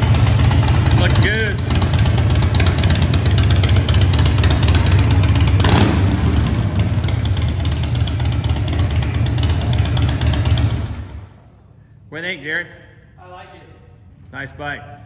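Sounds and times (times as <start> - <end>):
motorcycle engine idling: 0.0 - 11.4.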